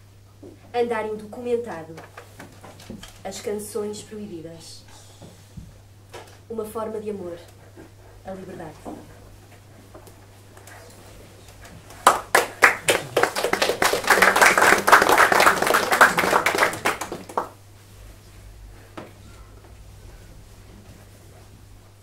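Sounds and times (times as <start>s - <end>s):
audience applauding: 12.0s - 17.6s.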